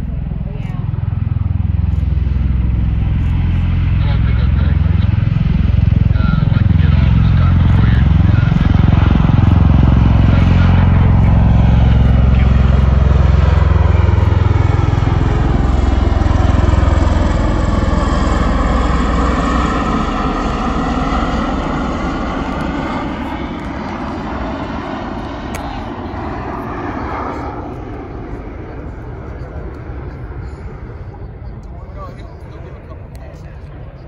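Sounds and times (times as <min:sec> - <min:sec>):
turboshaft engine whine: 0:00.0 - 0:34.0.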